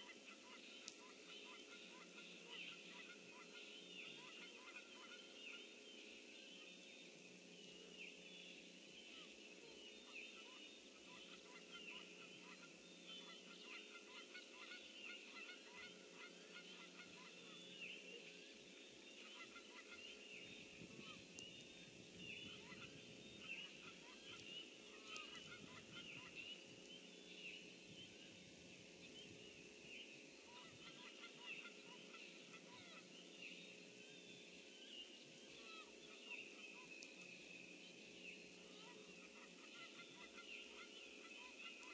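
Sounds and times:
faint low hum: 0.0s - 41.9s
chorus of high-pitched animal calls: 30.5s - 33.1s, 38.8s - 41.9s.

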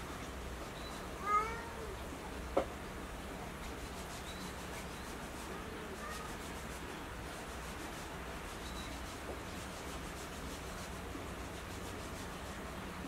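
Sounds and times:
cat meow: 1.2s - 2.0s.

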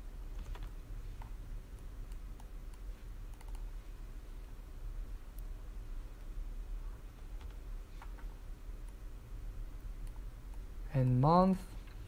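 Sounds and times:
low steady hum: 0.0s - 12.0s
computer mouse and keyboard clicks: 0.3s - 3.7s, 7.2s - 9.0s.

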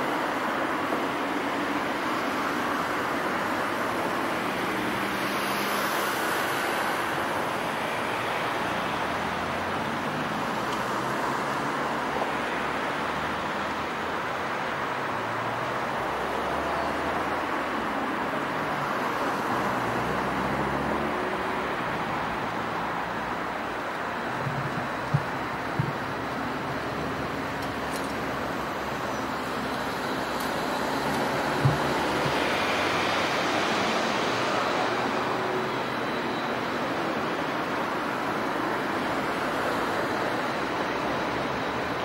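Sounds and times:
steady rushing noise: 20.7s - 42.0s.

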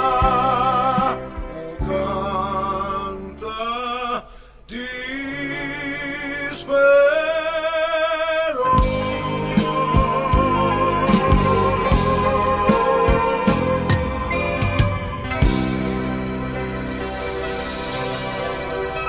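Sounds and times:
man singing with vibrato: 0.0s - 15.0s
band playing a steady beat: 8.7s - 19.0s.

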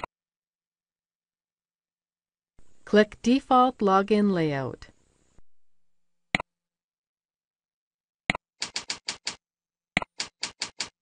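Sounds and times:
keyboard keystrokes: 8.6s - 9.4s, 10.0s - 11.0s.

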